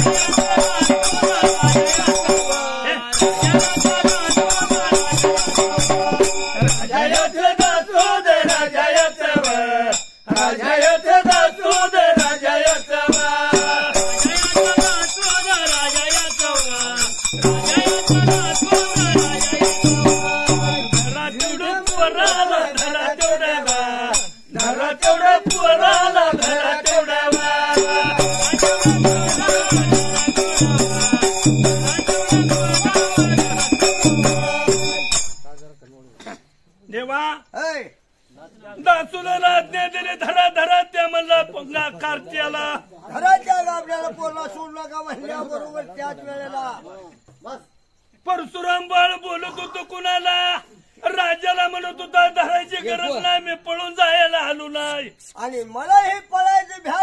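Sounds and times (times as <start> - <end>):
drum beating: 0.0 - 8.6, 10.3 - 35.4
man singing folk song: 0.0 - 34.8
hand cymbals jingling: 0.0 - 35.8.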